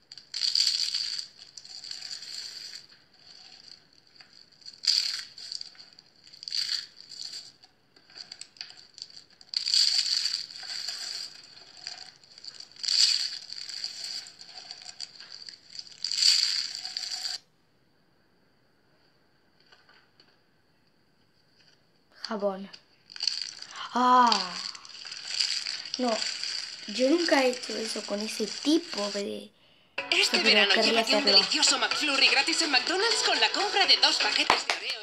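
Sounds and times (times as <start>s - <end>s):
dry soap shavings crackling: 0.0s - 17.4s, 23.1s - 29.4s.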